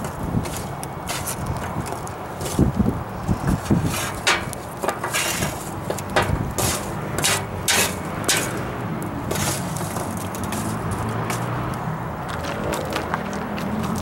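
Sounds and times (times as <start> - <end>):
metal tongs scraping charcoal: 0.0 - 2.8, 3.4 - 11.7.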